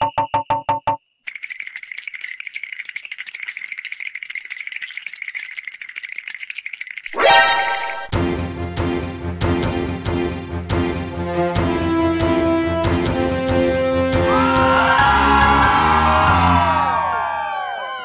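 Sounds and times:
rapid dense rattle clicking: 0:01.3 - 0:07.1.

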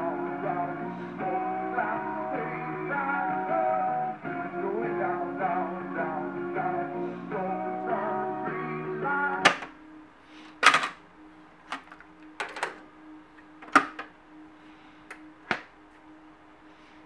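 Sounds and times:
faint steady hum: 0:00.0 - 0:17.0
stereo music: 0:00.0 - 0:17.0
cassette door popping open: 0:09.4 - 0:09.7, 0:10.6 - 0:11.0, 0:13.6 - 0:14.1, 0:15.5 - 0:15.7
cassette deck keys clicking: 0:11.7 - 0:12.8.

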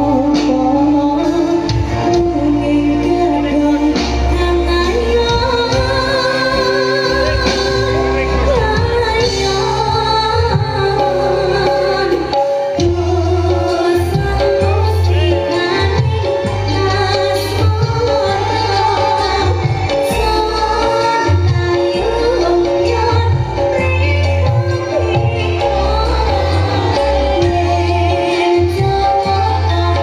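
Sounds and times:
band with metallophones and drums: 0:00.0 - 0:30.0
woman singing into a microphone: 0:00.0 - 0:30.0.

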